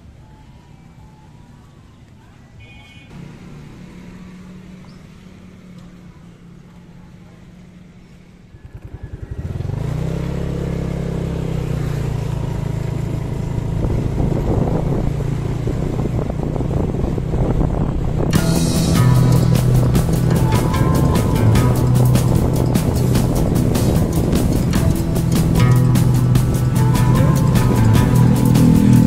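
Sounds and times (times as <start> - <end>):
bus diesel engine droning: 10.7 - 29.0
music: 18.3 - 29.0.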